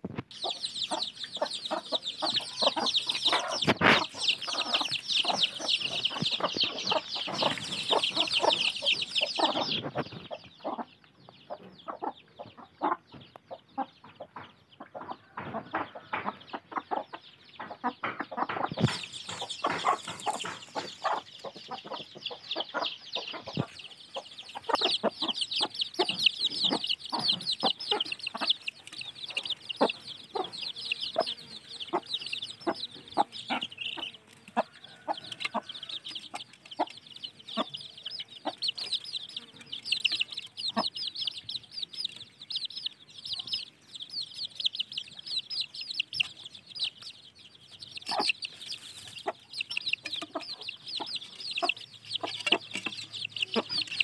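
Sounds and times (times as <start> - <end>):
chicken clucks: 0.0 - 54.0
chicks peeping: 0.0 - 54.0.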